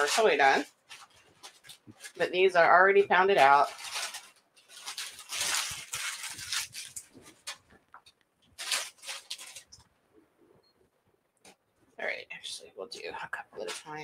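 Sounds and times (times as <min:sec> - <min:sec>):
wrapping rustling and crinkling: 0:00.0 - 0:09.9, 0:13.0 - 0:14.0.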